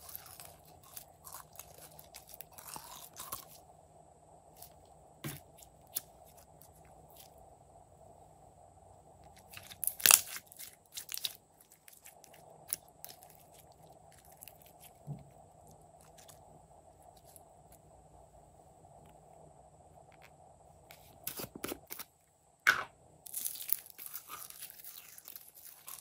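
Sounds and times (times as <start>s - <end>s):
slime crackling and popping: 0.0s - 3.6s, 9.4s - 15.0s, 23.3s - 26.0s.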